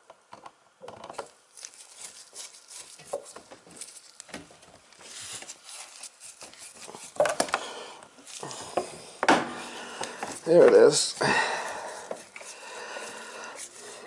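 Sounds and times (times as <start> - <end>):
gloved hand clicking and scraping: 1.2 - 9.0.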